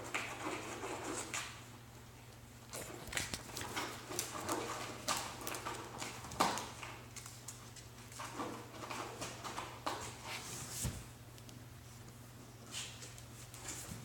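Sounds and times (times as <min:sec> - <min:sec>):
paws scratching on cardboard: 0:00.0 - 0:01.6, 0:02.7 - 0:11.0.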